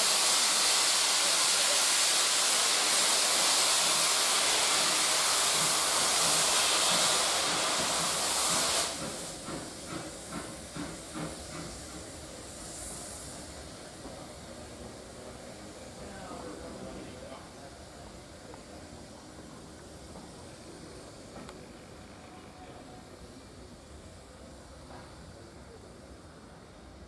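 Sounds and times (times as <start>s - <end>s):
steam hissing: 0.0s - 27.0s
steam train rhythmic chuffing: 0.0s - 27.0s.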